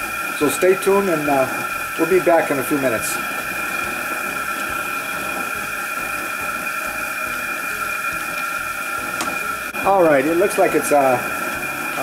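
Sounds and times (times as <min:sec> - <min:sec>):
gas burner flame hissing: 0:00.0 - 0:12.0
water boiling: 0:00.0 - 0:12.0.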